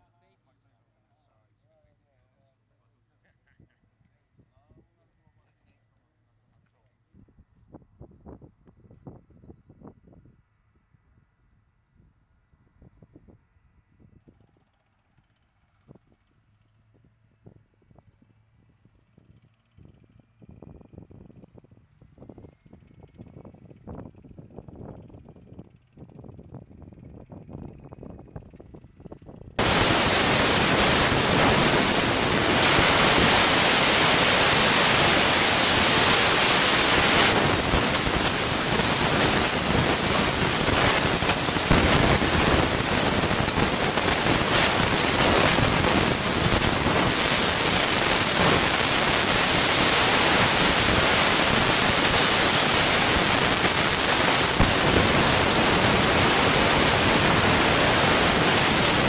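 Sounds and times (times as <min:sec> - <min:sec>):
loud steady hiss: 0:29.6 - 0:59.0.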